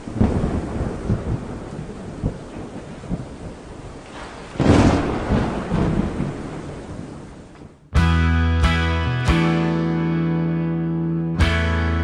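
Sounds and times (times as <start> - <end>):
loud thunderclap: 0.0 - 7.9
steady rain: 0.0 - 7.9
thunder rumbling: 0.0 - 7.9.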